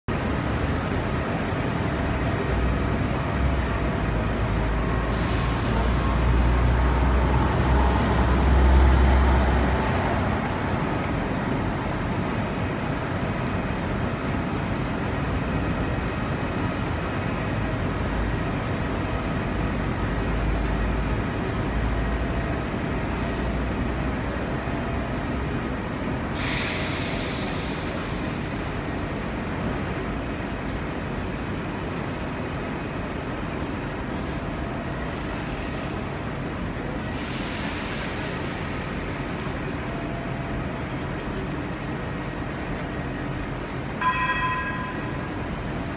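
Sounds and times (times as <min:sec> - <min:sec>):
tram rumbling on rails: 0:00.1 - 0:45.9
hissing air bursts: 0:05.1 - 0:09.2, 0:26.4 - 0:28.7, 0:37.1 - 0:39.6.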